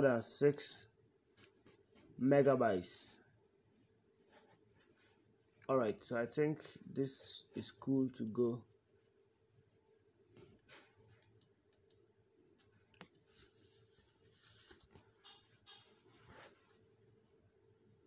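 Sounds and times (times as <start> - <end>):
computer mouse clicks: 11.0 - 12.1.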